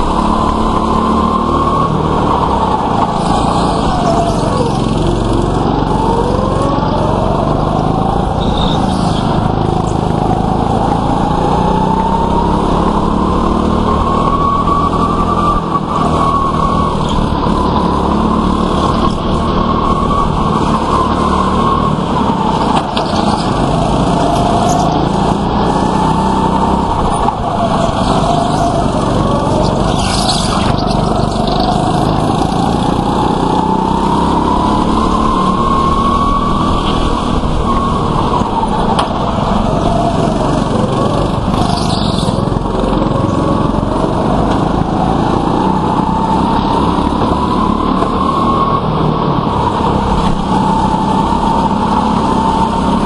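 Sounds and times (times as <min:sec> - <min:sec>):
go-kart engines revving: 0:00.0 - 0:53.0.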